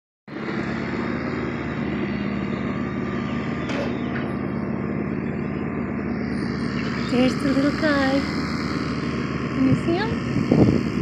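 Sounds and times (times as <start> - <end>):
engine running steadily: 0.3 - 11.0.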